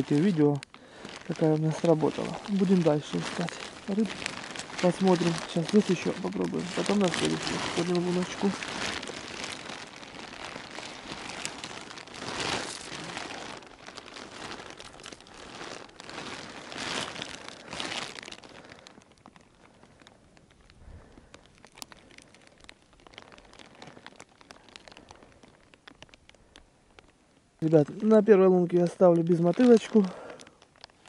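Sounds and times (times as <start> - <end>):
waterproof jacket rustling: 0.0 - 19.8
snow and ice slush crunching: 0.0 - 20.0, 27.6 - 31.0.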